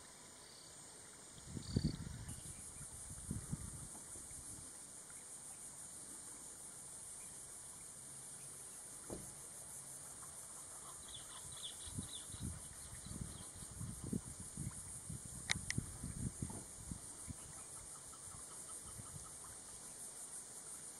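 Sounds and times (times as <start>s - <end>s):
high insect drone: 0.0s - 20.9s
wind rumbling on microphone: 1.4s - 4.6s, 11.6s - 17.6s, 18.8s - 19.4s.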